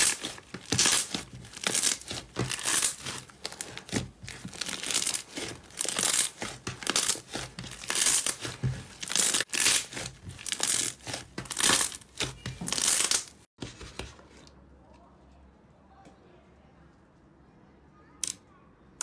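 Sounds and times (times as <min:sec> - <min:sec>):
slime squishing and crackling: 0:00.0 - 0:13.5.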